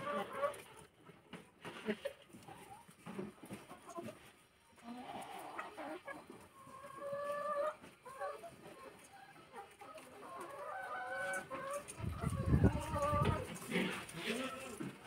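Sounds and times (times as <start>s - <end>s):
chicken drawn-out call: 0.0s - 0.7s, 4.8s - 15.0s
chickens clucking: 0.0s - 15.0s.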